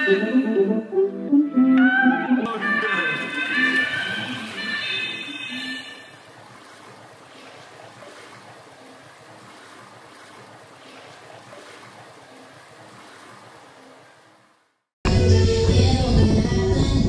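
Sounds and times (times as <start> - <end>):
background music: 0.0 - 6.0
faint rushing water: 2.5 - 14.9.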